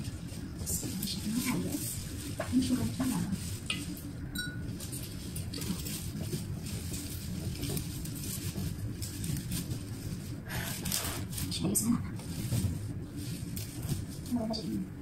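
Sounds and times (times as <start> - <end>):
flower stems rustling: 0.0 - 15.0
glass vase clinking: 4.3 - 4.7.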